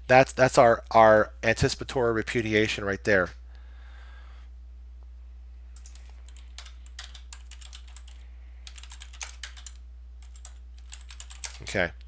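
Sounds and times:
steady low hum: 0:00.0 - 0:12.0
keyboard typing: 0:05.8 - 0:11.7.

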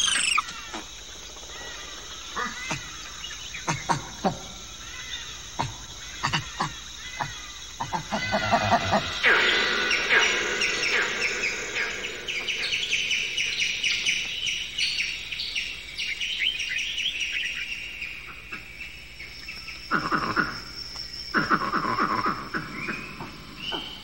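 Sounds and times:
low animal calls: 0:00.0 - 0:14.4, 0:19.9 - 0:24.0
birds chirping: 0:00.0 - 0:24.0.

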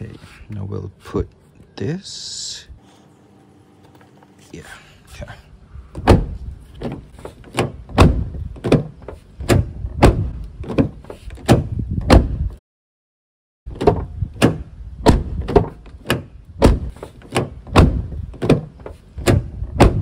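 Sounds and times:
truck door knocking against latch: 0:06.0 - 0:12.4, 0:13.7 - 0:20.0.

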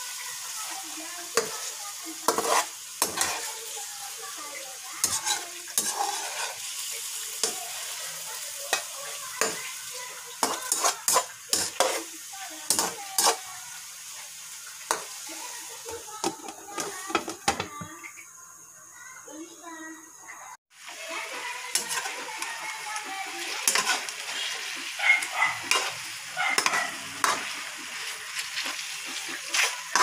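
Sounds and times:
meat sizzling in metal pan: 0:00.0 - 0:30.0
metal spatula scraping pan: 0:01.4 - 0:03.8, 0:05.0 - 0:08.0, 0:08.7 - 0:13.5, 0:21.7 - 0:30.0.

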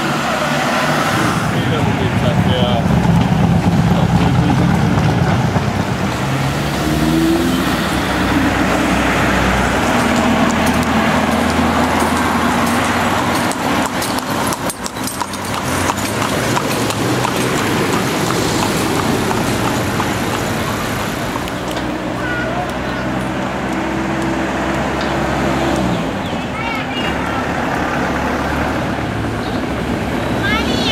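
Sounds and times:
car engine passing: 0:00.0 - 0:30.9
road noise: 0:00.0 - 0:30.9.

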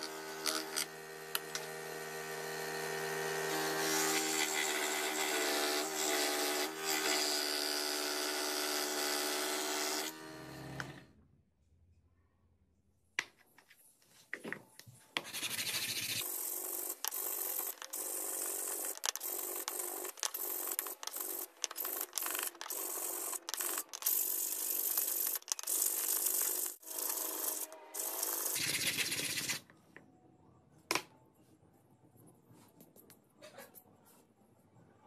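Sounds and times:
hand sanding wood: 0:15.2 - 0:16.2.

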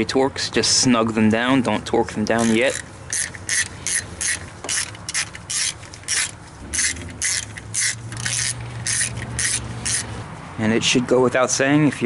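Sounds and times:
ratchet pawl clicking: 0:02.2 - 0:10.2.

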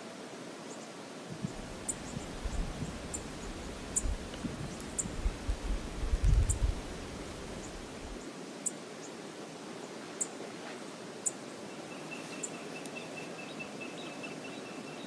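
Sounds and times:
wind buffeting microphone: 0:01.3 - 0:08.2.

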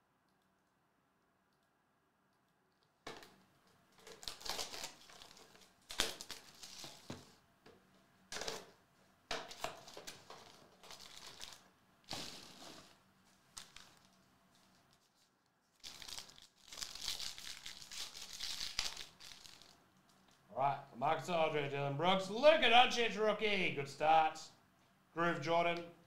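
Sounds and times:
wrapped packs crinkling: 0:04.0 - 0:07.2, 0:09.5 - 0:19.8.

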